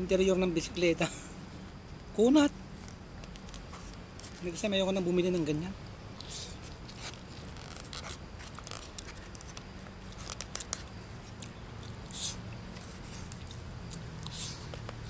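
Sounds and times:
short hissing sounds: 6.2s - 7.2s, 12.0s - 13.4s, 14.2s - 14.8s
person chewing food: 6.2s - 15.0s.

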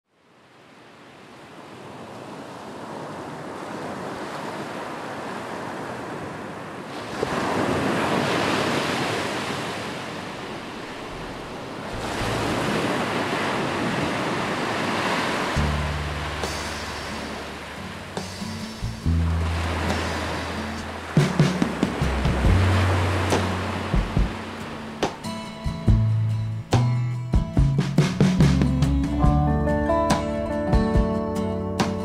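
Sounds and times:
ocean surf washing onto beach: 0.3s - 25.7s.

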